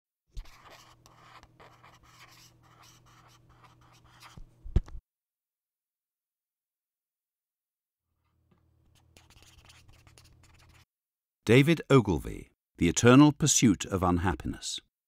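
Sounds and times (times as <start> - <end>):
pen scratching on paper: 0.4 - 4.5, 8.9 - 10.9.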